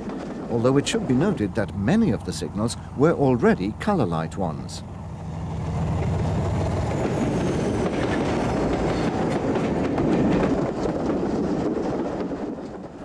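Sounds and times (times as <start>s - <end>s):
train wheels clicking on rails: 0.0s - 13.0s
diesel engine drone: 1.1s - 9.4s.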